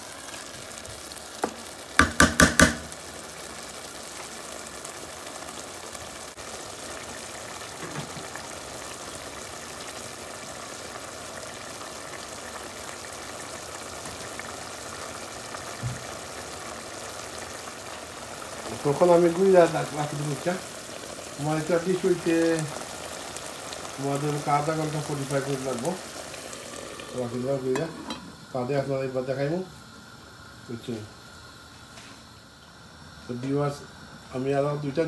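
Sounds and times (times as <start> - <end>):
meat sizzling in oil: 0.0 - 35.0
loud knocks: 2.0 - 2.9.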